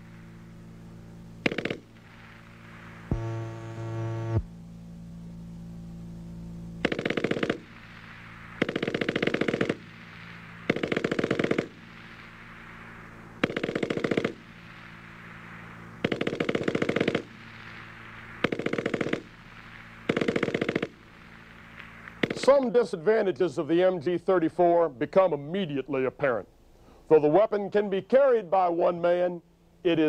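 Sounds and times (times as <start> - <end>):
machine gun firing bursts: 1.4 - 3.2, 6.8 - 22.7.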